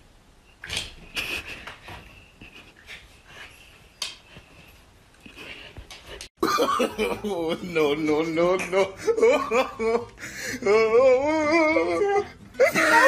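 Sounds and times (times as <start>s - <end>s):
dog sniffing and panting: 1.2s - 6.3s.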